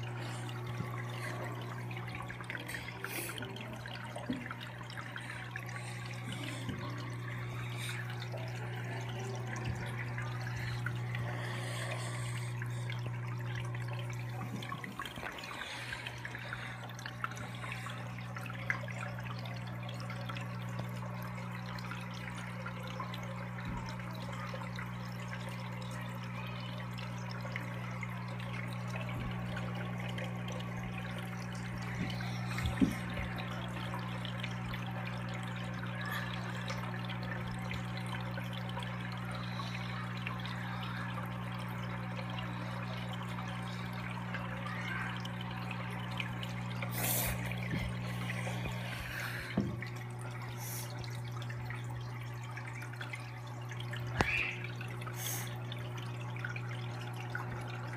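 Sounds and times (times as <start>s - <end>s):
aquarium filter humming: 0.0s - 57.9s
water trickling and splashing: 0.0s - 57.9s.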